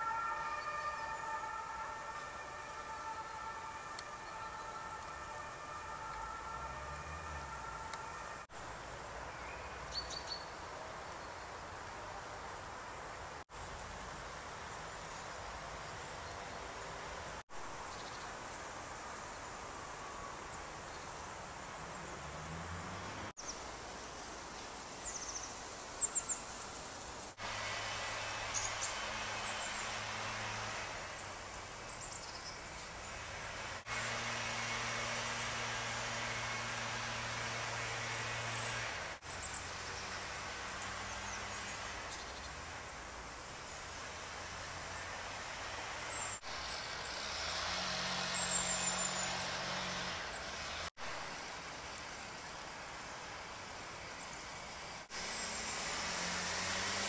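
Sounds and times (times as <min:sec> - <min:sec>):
open air hiss: 0:00.0 - 0:57.0
small birds chirping: 0:09.2 - 0:11.6, 0:23.4 - 0:26.8, 0:31.1 - 0:33.2.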